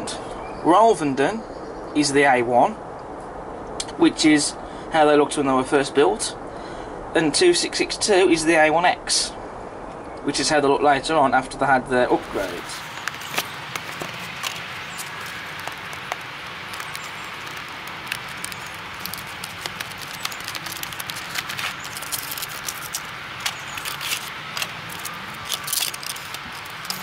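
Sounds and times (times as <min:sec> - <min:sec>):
steady background hiss: 0:00.0 - 0:27.0
plastic case clicks and crinkles: 0:12.1 - 0:27.0.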